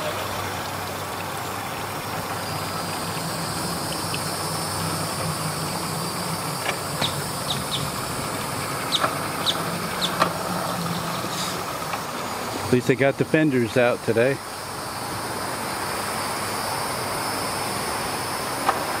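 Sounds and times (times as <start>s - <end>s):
engine idling: 0.0s - 19.0s
high falling chirps: 7.0s - 8.1s.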